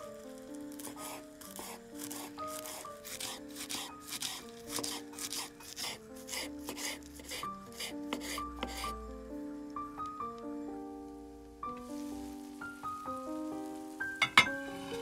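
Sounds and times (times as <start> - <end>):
background music: 0.0 - 15.0
knife chopping on wooden board: 0.8 - 8.9.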